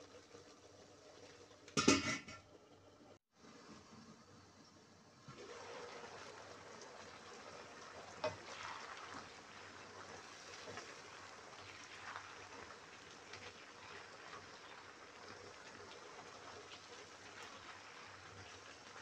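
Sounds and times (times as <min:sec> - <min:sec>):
sauce simmering and bubbling: 0:00.0 - 0:01.8, 0:03.6 - 0:19.0
spatula stirring and scraping: 0:08.1 - 0:19.0.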